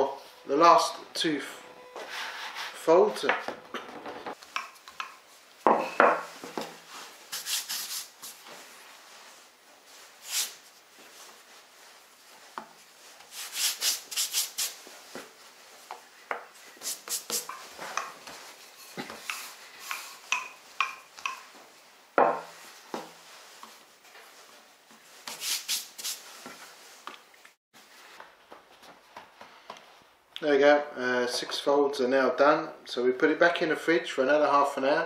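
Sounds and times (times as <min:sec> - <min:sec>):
brushing flour off dough: 0:06.8 - 0:15.8, 0:16.6 - 0:20.3.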